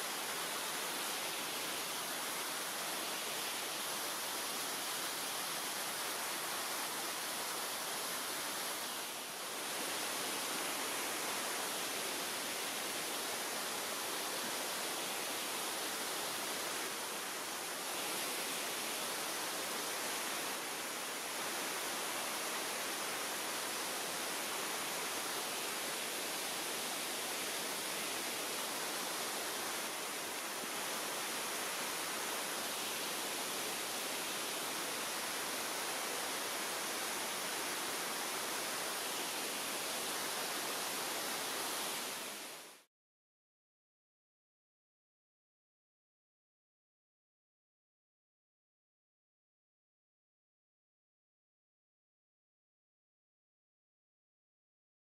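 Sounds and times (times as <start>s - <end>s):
stream rushing down waterfalls: 0.0s - 42.9s.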